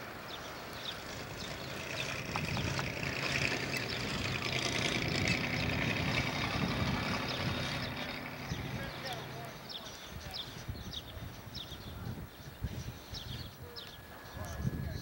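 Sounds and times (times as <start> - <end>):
truck engine running: 0.0 - 10.2.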